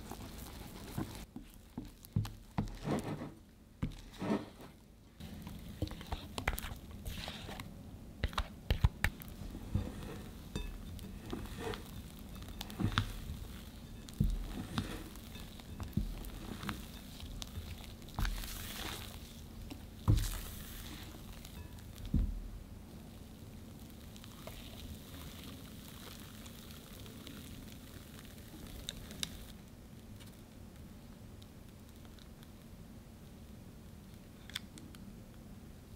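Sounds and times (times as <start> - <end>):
spatula scraping wet batter: 0.0 - 22.2.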